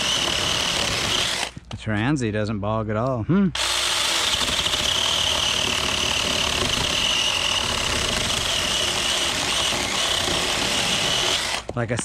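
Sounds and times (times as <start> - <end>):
electric chainsaw cutting a log: 0.0 - 1.6, 3.6 - 11.7.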